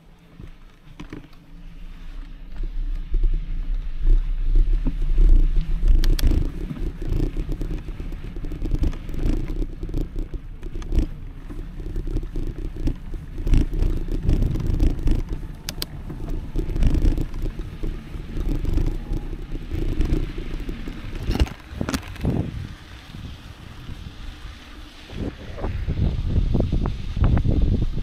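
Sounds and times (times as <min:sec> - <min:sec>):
bike rattling and knocking: 0:00.0 - 0:25.2
tyres rumbling on dirt: 0:00.0 - 0:28.0.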